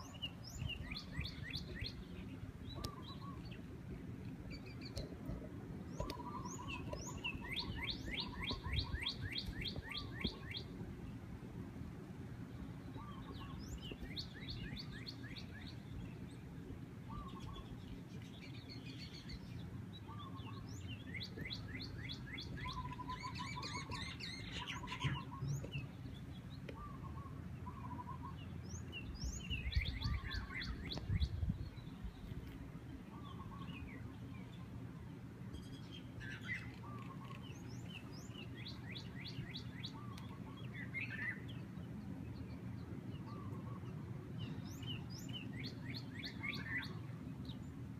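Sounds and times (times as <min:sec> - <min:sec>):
small birds chirping: 0:00.0 - 0:11.3, 0:12.3 - 0:47.9
wind on microphone: 0:29.1 - 0:32.6.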